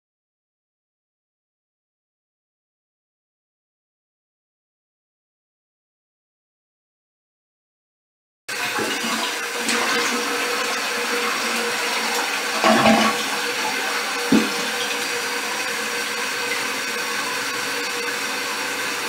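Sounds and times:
toilet flushing: 0:08.5 - 0:19.0.

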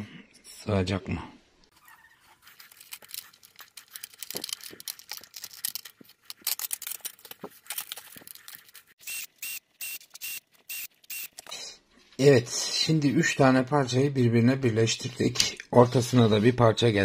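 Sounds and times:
small parts clicking and rattling: 0:02.5 - 0:11.6
cordless drill whirring in pulses: 0:09.0 - 0:11.4.

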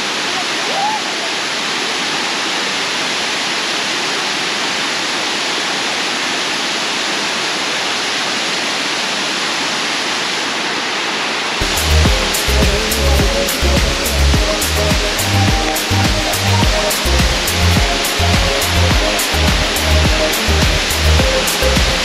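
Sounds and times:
stream rapids: 0:00.0 - 0:22.0
waterfall rushing: 0:00.0 - 0:22.0.

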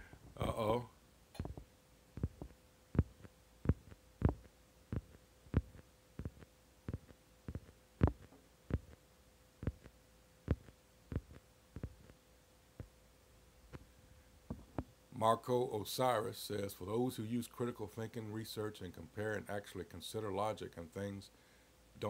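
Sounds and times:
faint steady hum: 0:00.0 - 0:22.0
fingers tapping on touchscreen: 0:02.2 - 0:09.0, 0:09.6 - 0:09.9, 0:10.5 - 0:12.2.

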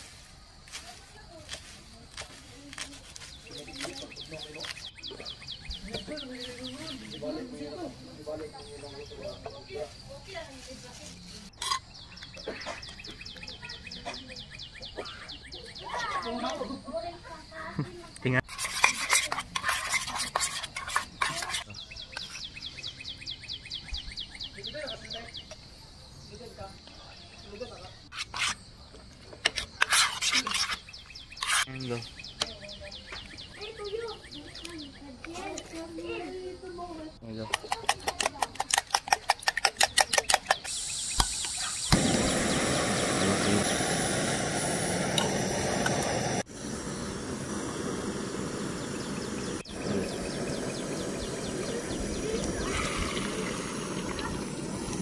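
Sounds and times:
spoon scraping metal pot: 0:11.5 - 0:12.0, 0:18.4 - 0:22.5, 0:28.1 - 0:28.6, 0:29.4 - 0:31.7, 0:37.5 - 0:40.7
bird chirping rapidly: 0:39.5 - 0:55.0
gas hissing from canister: 0:40.6 - 0:55.0
burner flame rushing: 0:40.7 - 0:55.0.

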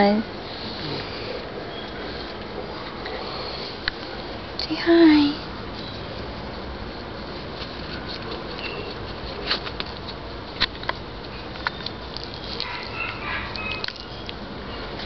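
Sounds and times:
background hum: 0:00.0 - 0:15.0
dog whining: 0:12.4 - 0:14.9.

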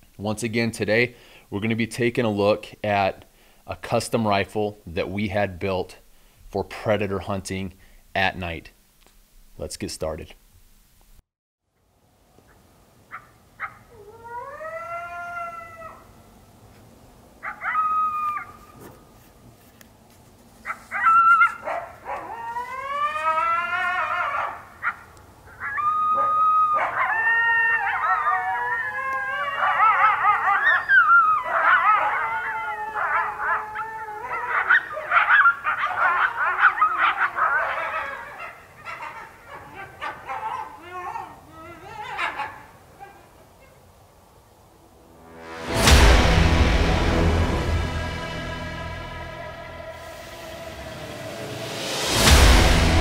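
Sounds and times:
coyotes howling: 0:13.1 - 0:16.2, 0:17.4 - 0:18.9, 0:20.7 - 0:43.9
coyote yips: 0:17.4 - 0:18.8, 0:20.7 - 0:27.2.

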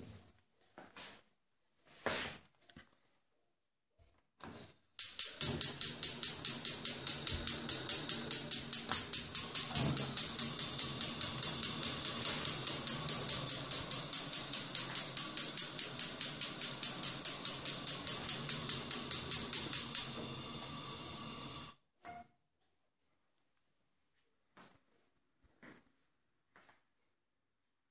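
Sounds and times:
gas hiss: 0:05.0 - 0:21.8
gas hob igniter clicking: 0:05.0 - 0:21.8.

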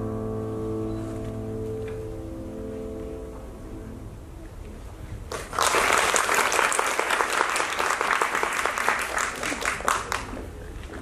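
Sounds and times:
audience applauding: 0:05.3 - 0:10.9.

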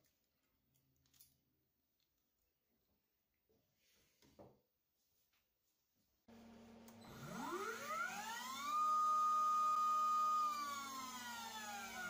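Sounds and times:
spindle motor whine: 0:06.4 - 0:12.0.

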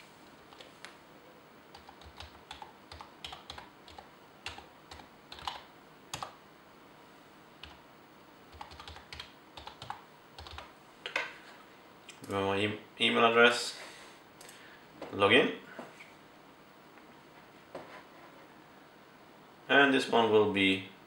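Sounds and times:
typing on computer keyboard: 0:01.7 - 0:06.4, 0:08.5 - 0:10.7.

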